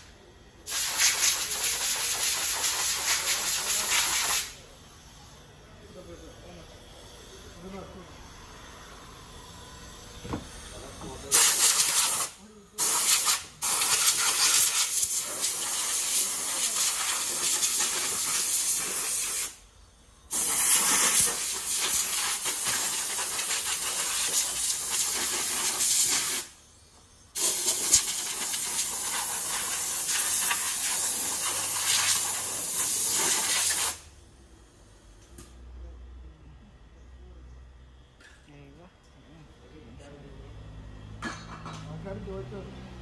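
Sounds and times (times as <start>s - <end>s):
compressed air blow gun hissing: 0.6s - 4.6s, 11.3s - 19.6s, 20.3s - 34.1s.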